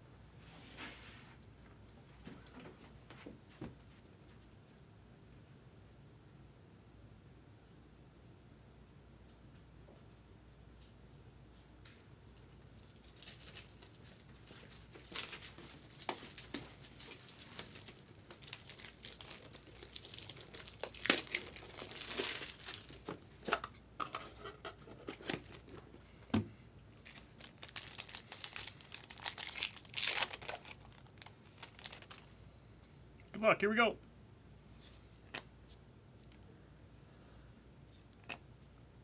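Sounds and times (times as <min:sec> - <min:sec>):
foil wrapper crinkling and tearing: 0:12.8 - 0:23.6, 0:27.0 - 0:32.3.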